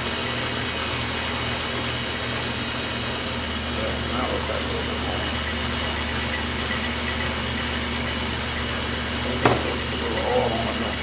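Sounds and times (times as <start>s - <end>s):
metal lathe motor humming: 0.0s - 11.0s
sharp knock: 9.4s - 9.8s.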